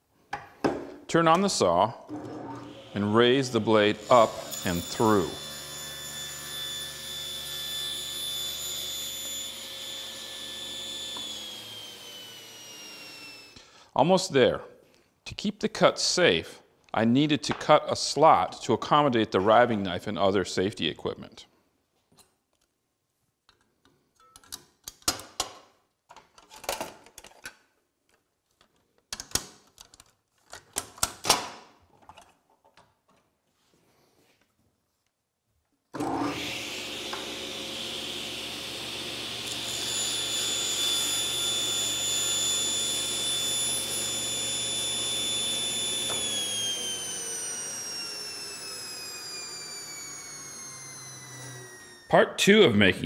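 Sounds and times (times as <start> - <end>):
table saw whining: 2.1 - 13.6, 36.0 - 52.3
metal and plastic parts clicking: 26.1 - 31.4.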